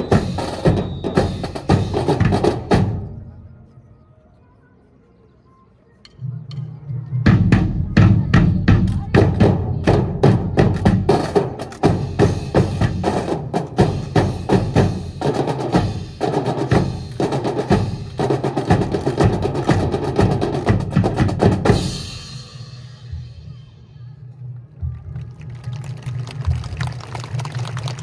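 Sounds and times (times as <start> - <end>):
marching drums playing: 0.0 - 3.1, 7.2 - 23.4.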